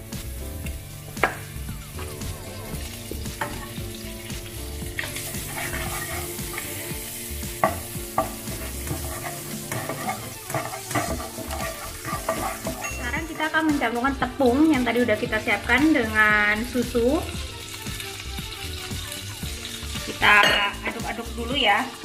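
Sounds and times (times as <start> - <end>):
margarine sizzling in a pan: 0.0 - 22.0
spatula scraping and tapping pan: 2.8 - 3.8, 4.9 - 13.4.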